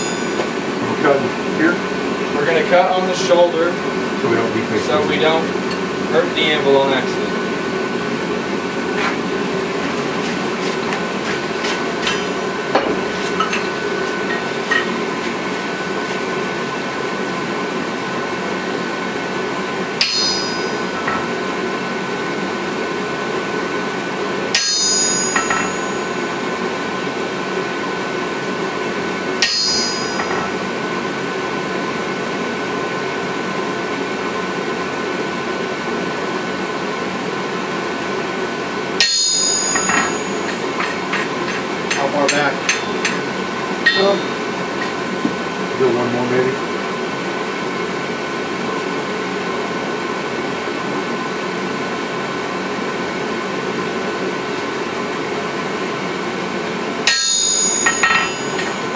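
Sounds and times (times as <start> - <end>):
hammer striking metal on anvil: 0.0 - 0.6, 20.0 - 21.5, 24.5 - 26.2, 29.4 - 30.6, 39.0 - 45.0, 57.1 - 58.9.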